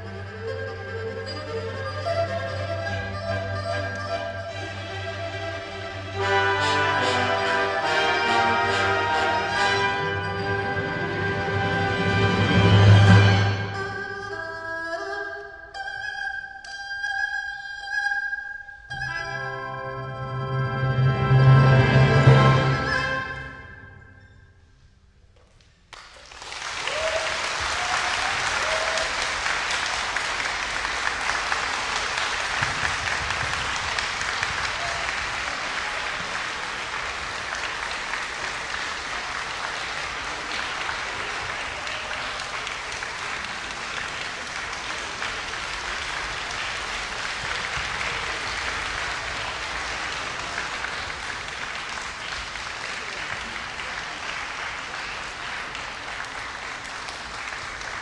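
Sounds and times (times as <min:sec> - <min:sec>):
orchestral music: 0:00.0 - 0:14.4, 0:18.9 - 0:24.4
audience applauding: 0:25.9 - 0:58.0.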